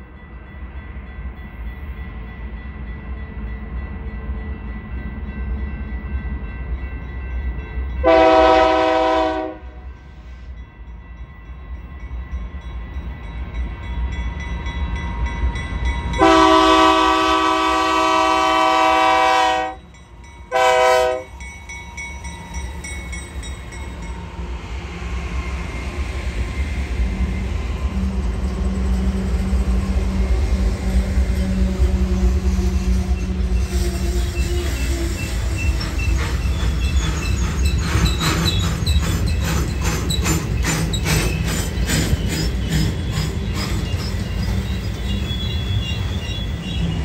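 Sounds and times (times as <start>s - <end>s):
rumble of passing freight train: 0.0s - 47.0s
locomotive horn blasts: 8.0s - 9.9s, 16.2s - 19.8s, 20.5s - 21.4s.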